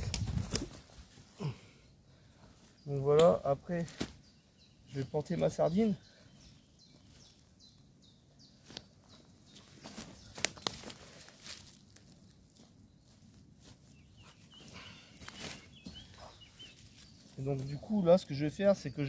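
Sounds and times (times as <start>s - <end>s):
tent stake clicks and knocks: 10.3s - 11.0s
faint bird calls: 13.9s - 17.9s.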